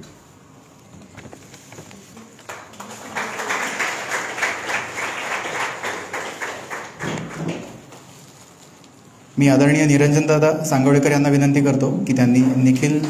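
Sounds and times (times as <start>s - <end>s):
people clapping: 2.2s - 8.1s, 12.3s - 13.0s.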